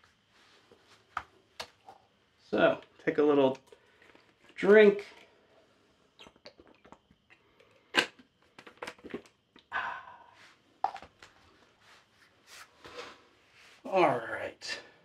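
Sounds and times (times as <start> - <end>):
breathing: 9.7 - 10.6.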